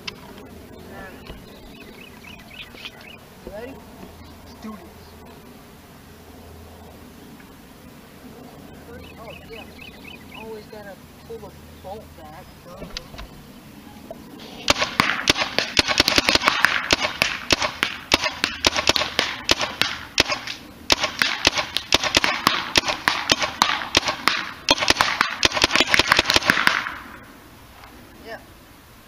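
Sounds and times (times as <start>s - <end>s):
paintball marker firing sharp pops: 14.6s - 27.1s.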